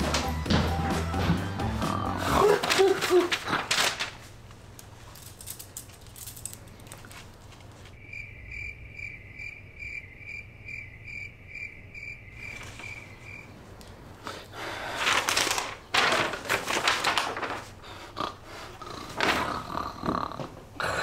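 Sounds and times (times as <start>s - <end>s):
cricket chirping: 8.0s - 13.6s.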